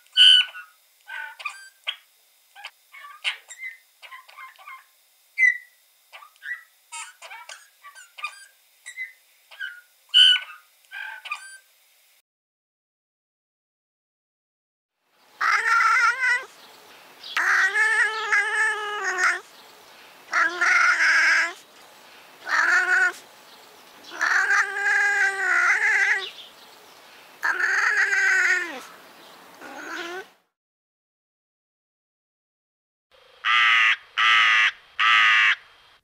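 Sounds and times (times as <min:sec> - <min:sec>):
wildcat meowing: 0:15.4 - 0:16.5, 0:17.4 - 0:19.5, 0:20.3 - 0:21.6, 0:22.4 - 0:23.2, 0:24.1 - 0:26.4, 0:27.4 - 0:29.0, 0:29.6 - 0:30.4.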